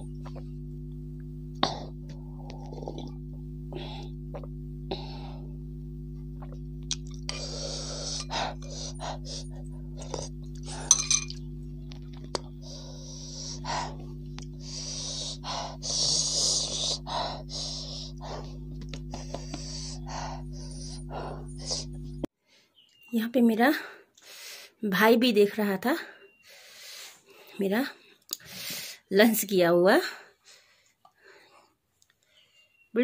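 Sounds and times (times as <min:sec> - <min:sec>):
steady low hum: 0:00.0 - 0:22.3
person slurping soup: 0:06.4 - 0:11.0
bowl clinking down: 0:10.7 - 0:11.4.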